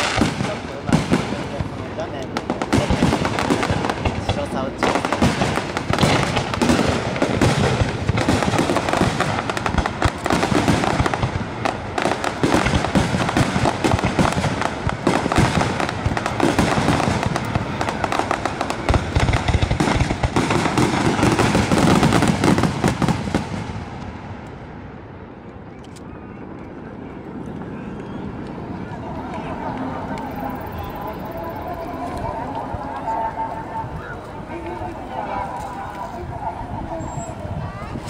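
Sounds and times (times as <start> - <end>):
fireworks bangs and crackle: 0.0 - 25.2.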